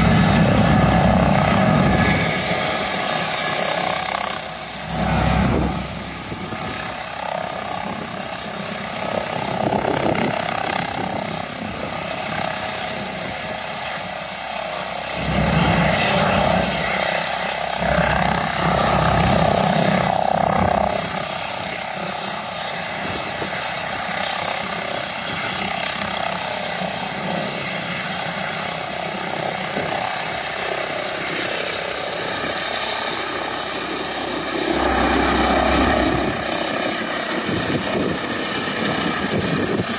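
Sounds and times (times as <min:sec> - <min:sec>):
wind buffeting microphone: 0:00.0 - 0:13.6, 0:32.2 - 0:39.9
helicopter rotor and turbines: 0:00.0 - 0:39.9
high turbine whine: 0:00.0 - 0:39.9.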